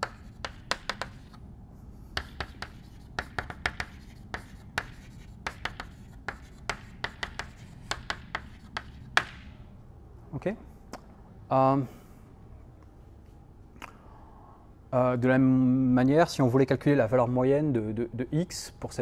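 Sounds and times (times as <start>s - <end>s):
chalk tapping and scraping on blackboard: 0.0s - 1.4s, 2.0s - 9.5s.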